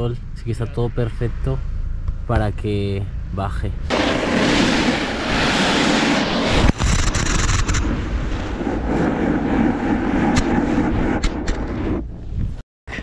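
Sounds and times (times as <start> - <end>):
snowboard scraping icy snow: 3.9 - 12.0
wind on microphone: 3.9 - 12.6.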